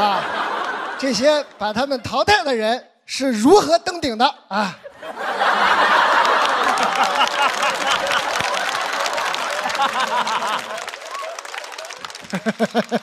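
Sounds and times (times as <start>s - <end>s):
audience laughing: 0.0s - 2.2s, 4.7s - 13.0s
audience clapping: 0.1s - 1.0s, 5.6s - 13.0s.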